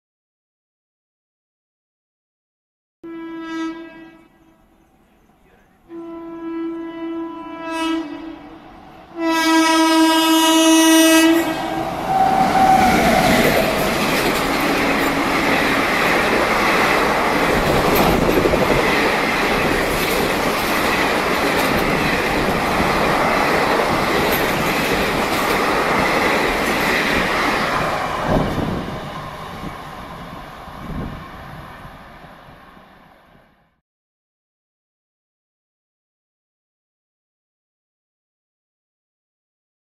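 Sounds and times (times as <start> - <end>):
two-tone train horn: 3.0 - 15.8
wheels clattering: 12.6 - 27.3.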